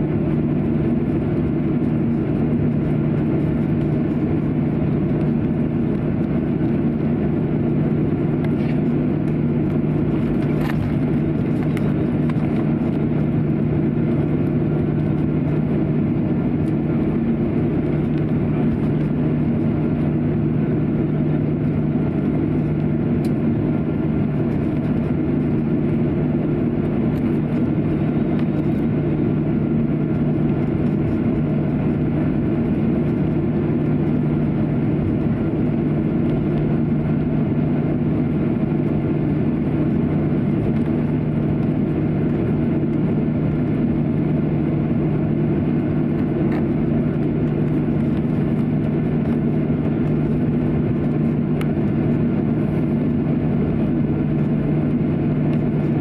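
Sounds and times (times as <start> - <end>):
jet engines droning: 0.0 - 56.0.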